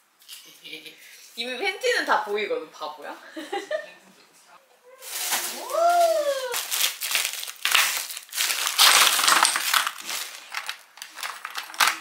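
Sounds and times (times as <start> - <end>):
plastic crinkling and rattling: 5.0 - 12.0.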